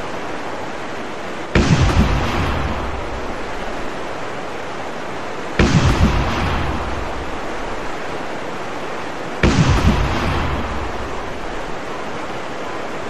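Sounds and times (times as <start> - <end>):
steady hiss: 0.0 - 13.0
deep boom with low rumble: 1.6 - 3.8, 5.6 - 8.0, 9.4 - 11.8.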